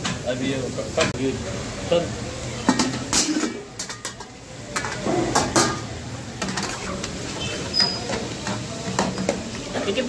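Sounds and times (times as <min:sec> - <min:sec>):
metal wok lid clanking: 0:02.6 - 0:09.9
ladle scraping a metal pan: 0:06.4 - 0:09.3.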